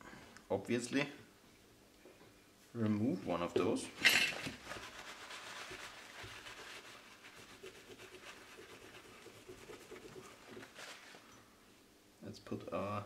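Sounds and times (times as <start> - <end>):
paper rustle: 4.0 - 8.4, 9.9 - 11.3
paper towel rubbing circuit board: 4.6 - 11.3.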